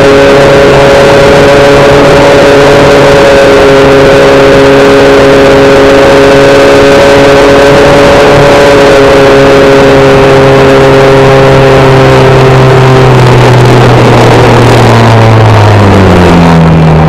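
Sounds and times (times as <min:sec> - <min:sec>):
electric motor and propeller whine: 0:00.0 - 0:17.0
rushing air: 0:11.8 - 0:17.0.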